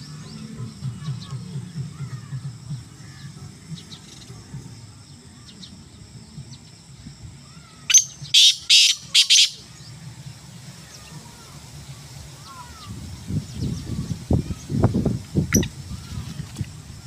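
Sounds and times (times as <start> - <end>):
francolin calling: 0.0 - 17.0
faint small bird chirps: 15.5 - 16.7.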